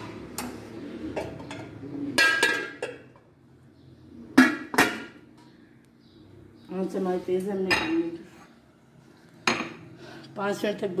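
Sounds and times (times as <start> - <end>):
metal lid clanking on pot: 2.2 - 3.0.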